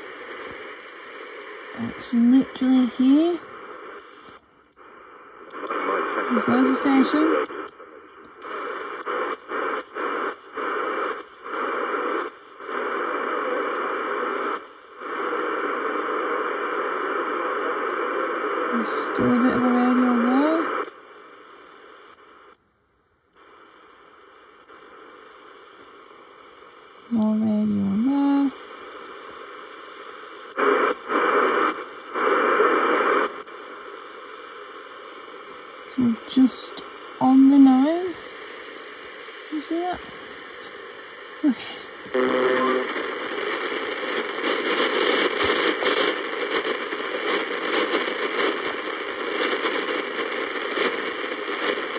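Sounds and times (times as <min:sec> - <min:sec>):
radio static hiss: 0:00.0 - 0:51.9.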